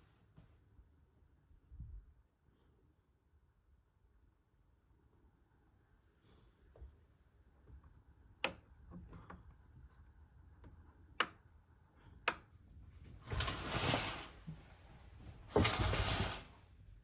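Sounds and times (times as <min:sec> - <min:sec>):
light switch clicks: 0:11.2 - 0:11.4
curtains swishing along a rail: 0:13.0 - 0:16.7.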